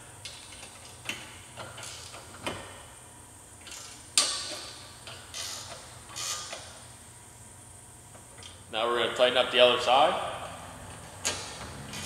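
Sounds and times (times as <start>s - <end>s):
wrench scraping: 5.3s - 6.6s.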